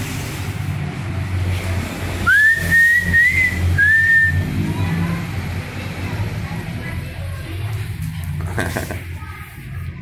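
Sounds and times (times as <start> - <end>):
person whistling: 2.3 - 4.4.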